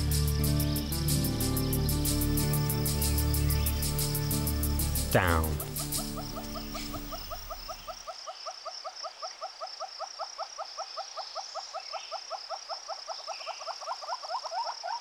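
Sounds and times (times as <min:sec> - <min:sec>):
background music: 0:00.0 - 0:07.9
insect buzz: 0:00.0 - 0:08.0
hornbills clucking: 0:01.3 - 0:08.0.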